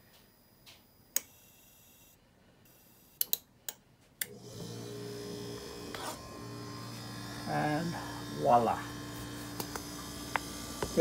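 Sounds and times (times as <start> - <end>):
sharp clicks: 3.2 - 4.4
refrigerator compressor humming: 4.3 - 11.0.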